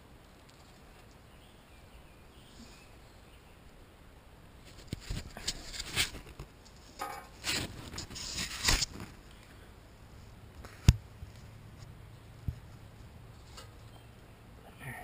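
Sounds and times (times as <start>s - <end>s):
camera handling rustling and scraping: 4.6s - 9.2s.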